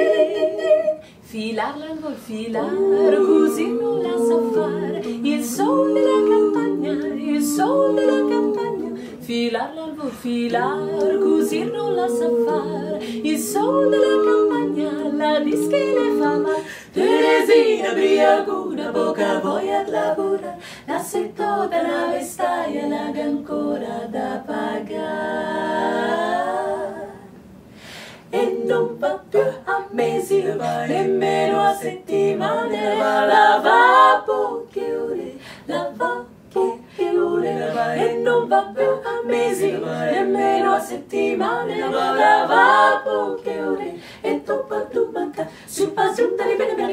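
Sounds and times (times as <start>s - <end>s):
women singing a cappella harmony: 0.0s - 46.9s.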